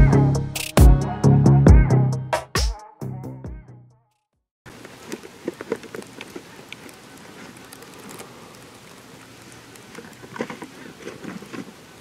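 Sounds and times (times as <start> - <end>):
dry stalks rustling: 4.7 - 12.0
faint steady hiss: 4.7 - 12.0.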